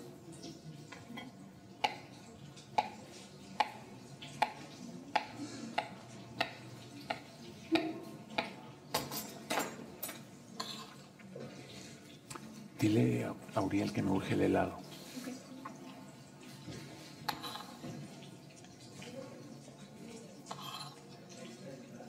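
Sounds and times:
knife chopping on plastic board: 0:03.6 - 0:03.8.

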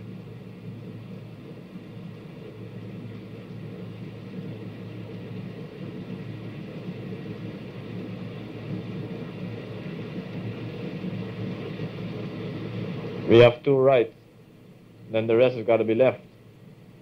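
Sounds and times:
faint hiss: 0:00.0 - 0:17.0
low hum and rumble: 0:00.0 - 0:17.0.

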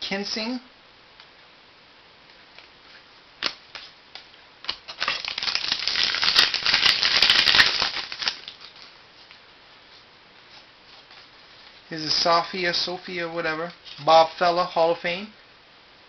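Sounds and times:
wrapper crinkling and tearing: 0:04.7 - 0:09.0.

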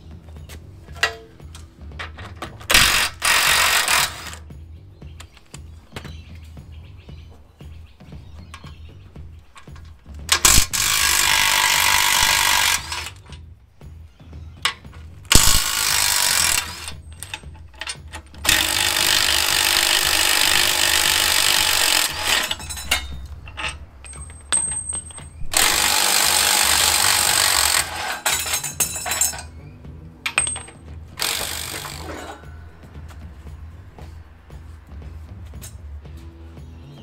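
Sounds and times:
impact wrench running: 0:02.7 - 0:04.5, 0:09.6 - 0:13.4, 0:15.2 - 0:29.5, 0:30.4 - 0:32.5.

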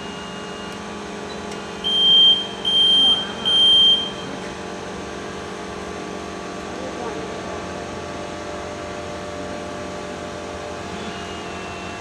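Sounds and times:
high buzzer beeps: 0:01.8 - 0:04.3.

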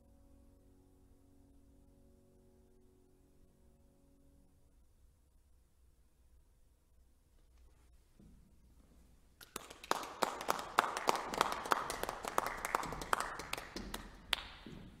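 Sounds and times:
audience applauding: 0:09.4 - 0:14.7.

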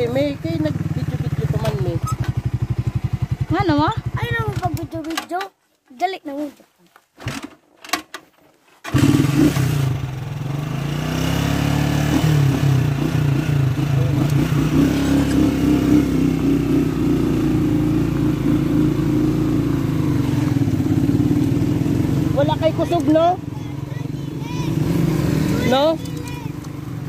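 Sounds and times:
motorcycle engine running: 0:00.0 - 0:05.1, 0:08.9 - 0:27.0
quiet clicks: 0:26.0 - 0:26.8.

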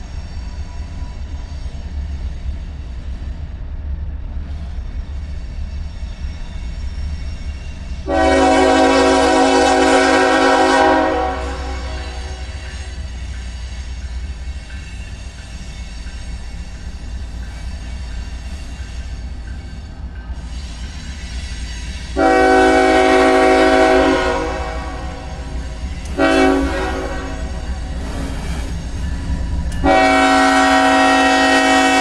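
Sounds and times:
train rumbling: 0:00.0 - 0:32.0
locomotive air horn blasts: 0:08.1 - 0:12.6, 0:22.2 - 0:27.7, 0:29.8 - 0:32.0.

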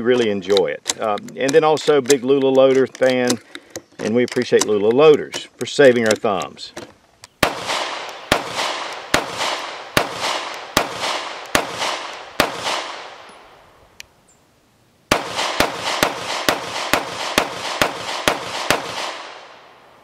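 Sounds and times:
pistol shots echoing: 0:07.4 - 0:13.7, 0:15.1 - 0:20.0.

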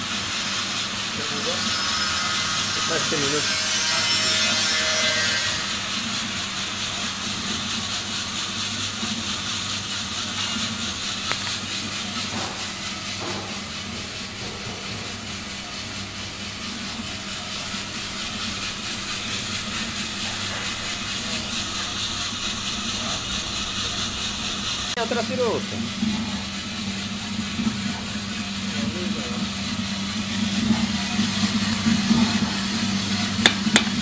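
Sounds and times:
low motor hum: 0:09.0 - 0:34.0.

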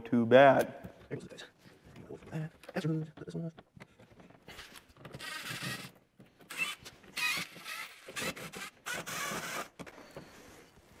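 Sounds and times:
cordless drill whirring: 0:04.5 - 0:10.2.

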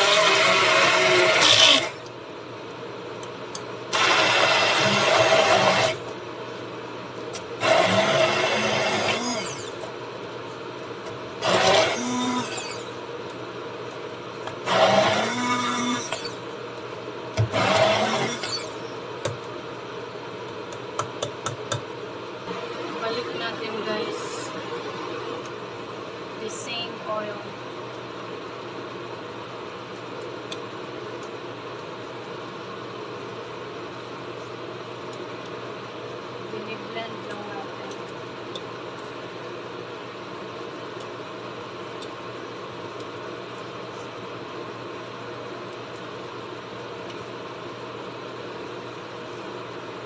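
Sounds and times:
immersion blender whirring: 0:00.0 - 0:02.1, 0:03.9 - 0:06.1, 0:07.4 - 0:10.0, 0:11.4 - 0:13.0, 0:14.5 - 0:16.4, 0:17.4 - 0:18.9.

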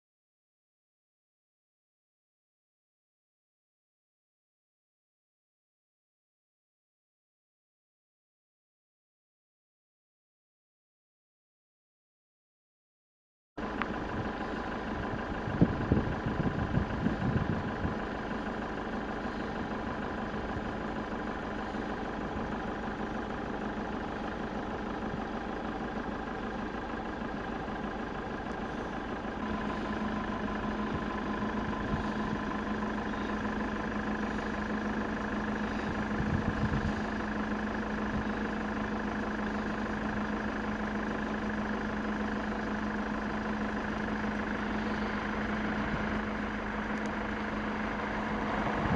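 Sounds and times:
machine drone with held tones: 0:13.6 - 0:41.0, 0:41.8 - 0:48.9
deep hum: 0:13.6 - 0:48.9.

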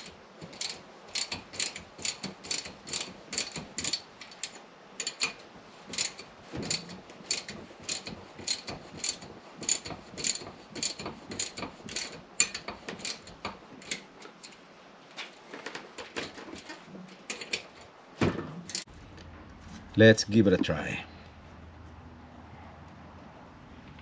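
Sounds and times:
ratchet handle clicking: 0:00.0 - 0:14.6.

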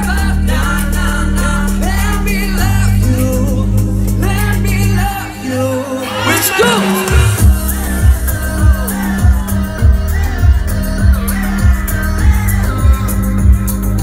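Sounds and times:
heavy bass line: 0:00.0 - 0:05.4, 0:06.3 - 0:14.0
group singing into microphones: 0:00.0 - 0:14.0
thumping beat: 0:07.0 - 0:14.0.

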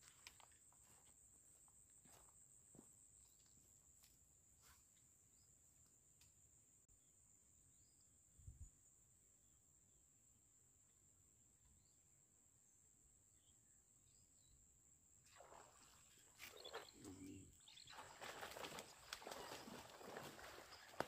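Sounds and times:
distant bird chirps: 0:15.5 - 0:21.0.

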